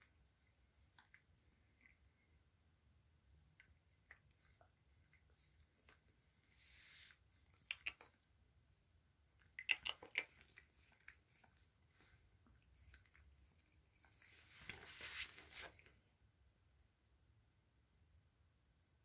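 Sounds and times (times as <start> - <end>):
soft rustling: 3.6 - 7.6, 10.6 - 16.0
dog licking with wet lapping: 9.4 - 11.7, 12.5 - 14.8.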